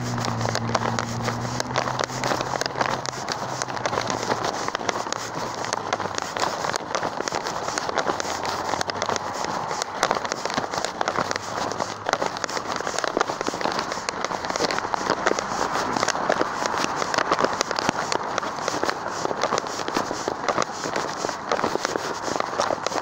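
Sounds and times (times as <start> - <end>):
microphone rubbing crackle: 0.0 - 23.0.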